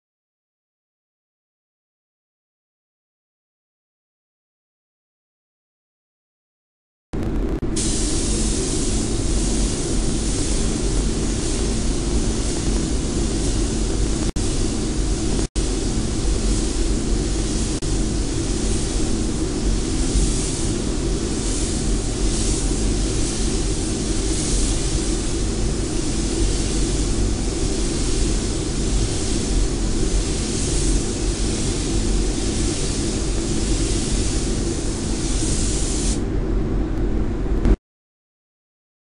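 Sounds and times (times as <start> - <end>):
ventilation rumble: 7.2 - 37.8
paint spray gun hissing: 7.8 - 36.2.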